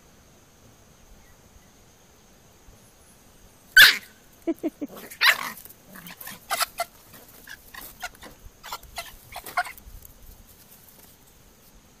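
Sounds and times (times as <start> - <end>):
puppy yipping: 3.8 - 4.1, 5.0 - 9.8.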